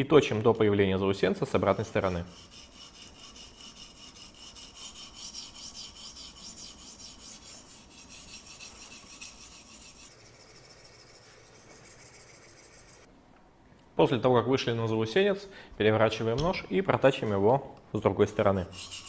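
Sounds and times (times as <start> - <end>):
sharpening stone rasping on knife: 1.9 - 13.1, 18.6 - 19.0.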